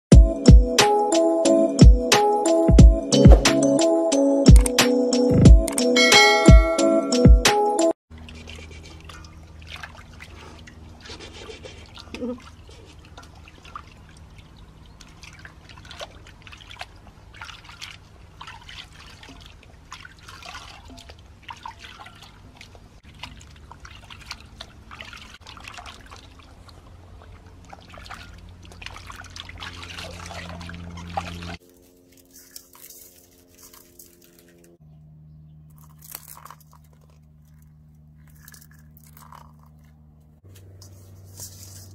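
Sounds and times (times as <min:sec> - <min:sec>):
hands splashing water in bowl: 0:08.2 - 0:34.6, 0:35.7 - 0:39.8.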